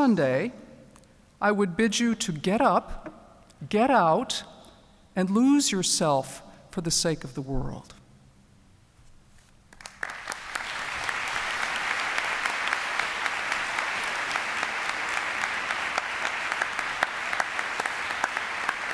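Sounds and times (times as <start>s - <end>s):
audience applauding: 9.7s - 18.9s.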